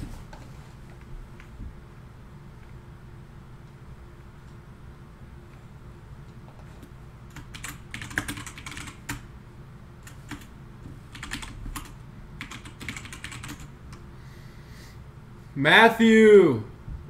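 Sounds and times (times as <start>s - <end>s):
computer keyboard typing: 7.3s - 9.3s, 10.0s - 10.5s, 11.1s - 13.7s.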